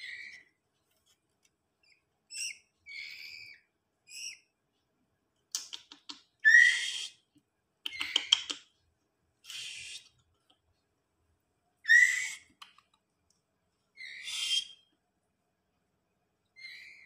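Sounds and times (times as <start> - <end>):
fledglings begging calls: 6.5 - 7.1, 9.5 - 10.1, 11.9 - 12.5, 14.0 - 14.8.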